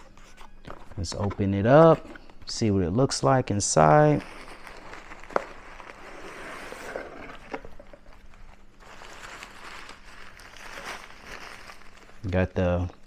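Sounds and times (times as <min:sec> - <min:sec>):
rustling of thin fabric and cardboard: 0:03.6 - 0:12.9.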